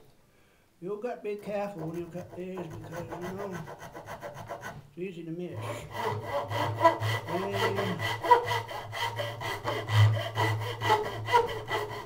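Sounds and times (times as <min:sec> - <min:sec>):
fret saw cutting wood: 0:01.8 - 0:04.8, 0:05.6 - 0:12.0.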